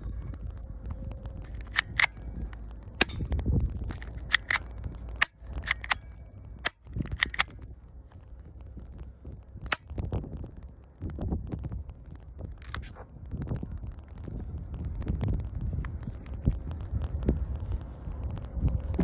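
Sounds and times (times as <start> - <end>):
toy pistol action clicks: 1.4 - 3.4, 4.0 - 7.6.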